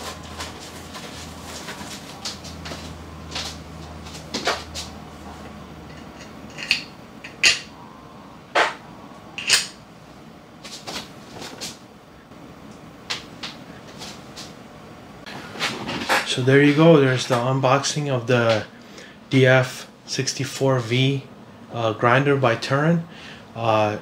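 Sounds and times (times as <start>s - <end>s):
grinder parts clicking and knocking: 5.8s - 7.7s.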